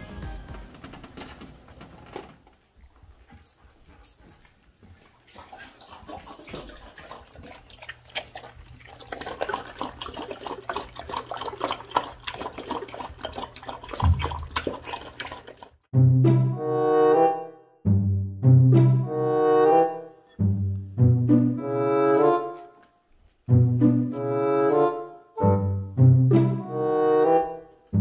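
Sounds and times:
puppy lapping water: 4.8 - 15.9.

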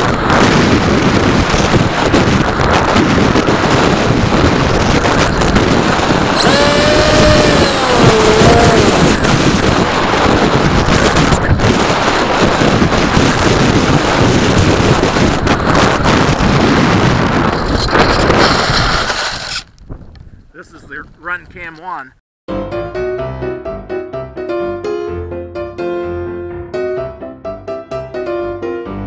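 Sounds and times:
wind rushing: 0.0 - 21.2
model airplane motor whining: 5.9 - 9.6.

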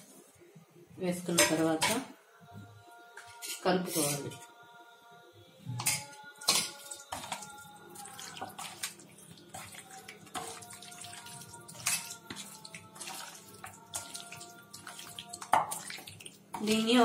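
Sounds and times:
wet squelching of mixing meat: 6.8 - 16.8.

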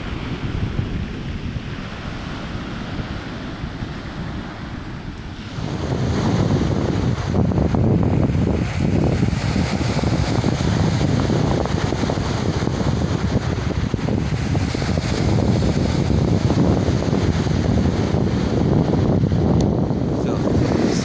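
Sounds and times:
wind rumbling on microphone: 0.0 - 21.0
surf washing over pebbles: 5.4 - 21.0.

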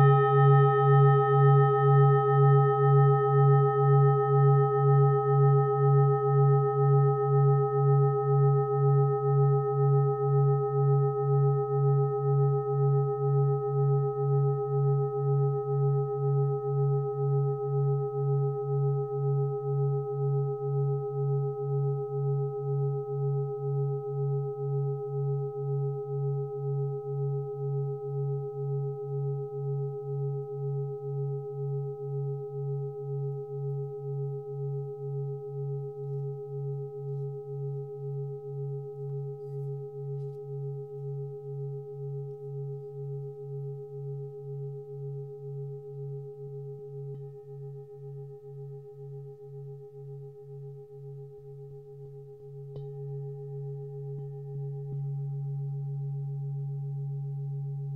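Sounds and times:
singing bowl pulsing hum: 0.0 - 57.9.

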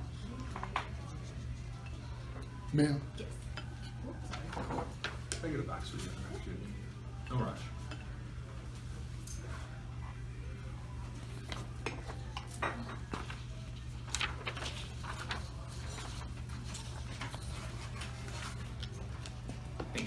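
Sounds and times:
dishes and cutlery clinking: 3.2 - 5.4, 11.5 - 13.5.

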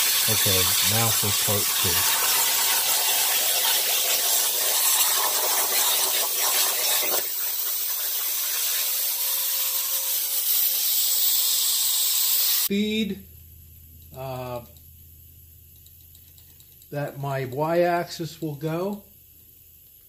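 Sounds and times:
plasma torch hissing: 0.0 - 12.7
low rumble: 13.1 - 16.1.

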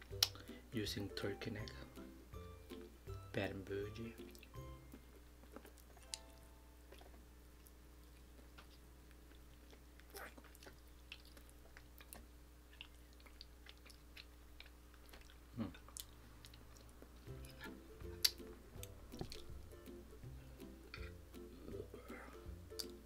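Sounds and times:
chewing and mouth clicks: 0.1 - 0.4, 4.2 - 4.6, 5.4 - 19.6, 22.7 - 23.0.

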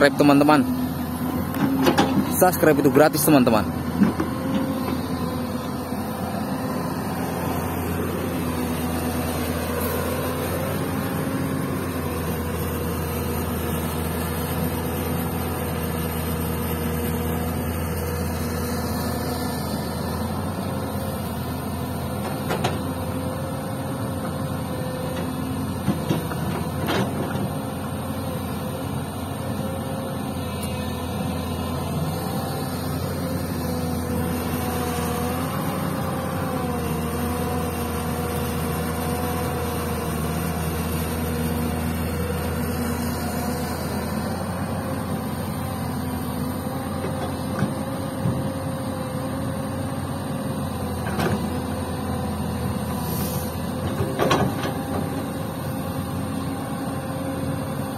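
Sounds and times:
excavator diesel engine digging: 0.0 - 57.9.

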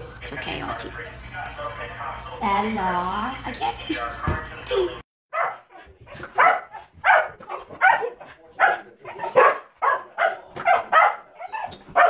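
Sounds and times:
dogs barking excitedly: 5.3 - 12.0.

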